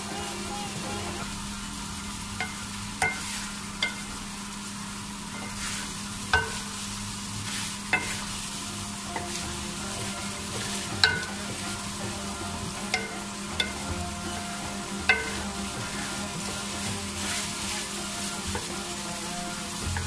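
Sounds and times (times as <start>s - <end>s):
vegetables sizzling in a pot: 0.0s - 20.0s
wooden spatula scraping: 5.3s - 20.0s
spatula knocking against pot: 6.3s - 6.7s, 8.0s - 8.2s, 10.0s - 11.7s, 12.7s - 17.4s.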